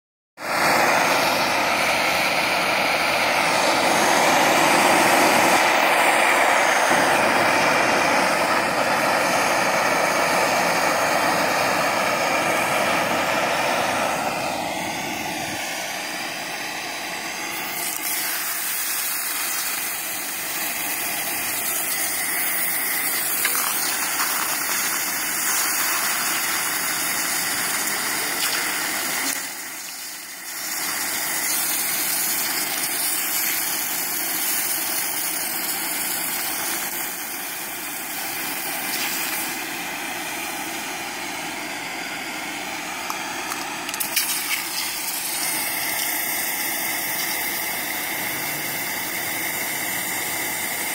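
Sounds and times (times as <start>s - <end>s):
water hissing on hot metal: 17.7s - 39.6s.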